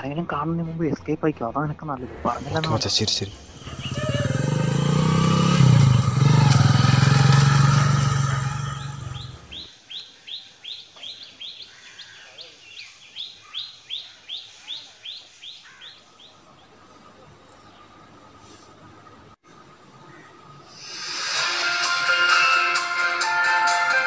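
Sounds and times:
bird chirping: 2.4s - 7.0s, 8.2s - 20.6s
motorcycle engine running: 3.6s - 9.6s.

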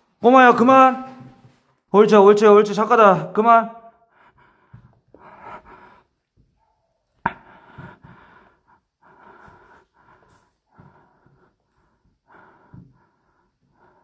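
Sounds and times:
man breathing heavily: 4.0s - 14.0s.

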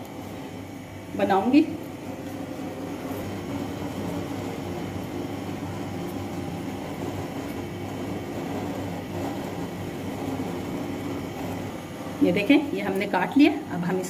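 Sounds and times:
low appliance hum: 0.0s - 14.0s.

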